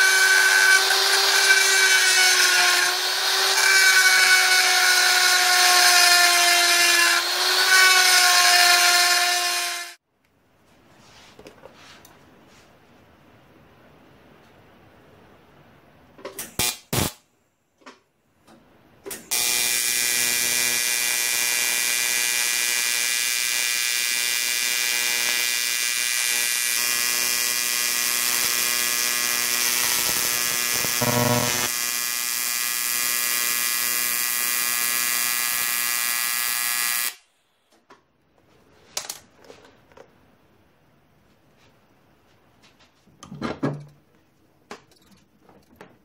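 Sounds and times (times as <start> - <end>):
welding arc buzzing and hissing: 0.0 - 5.3, 16.4 - 17.2, 19.3 - 37.2.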